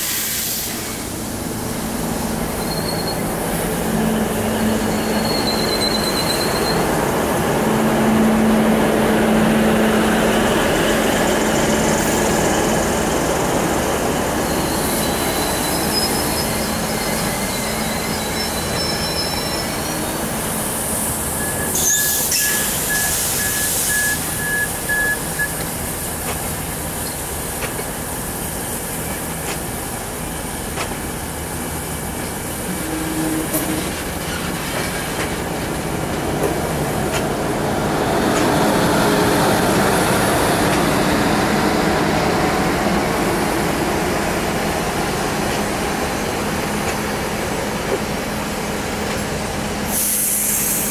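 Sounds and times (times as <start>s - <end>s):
hiss burst: 0.0s - 1.2s, 49.9s - 50.9s
railcar engine and wheels rumbling: 0.0s - 50.9s
wheel squeals: 2.6s - 3.3s, 4.7s - 6.9s, 14.4s - 20.1s, 21.4s - 25.6s.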